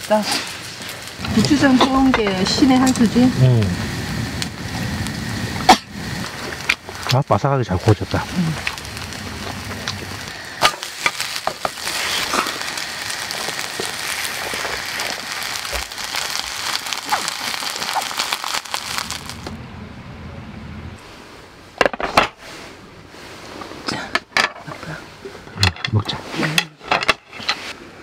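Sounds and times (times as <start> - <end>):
pancake sizzling in oil: 0.0 - 19.5.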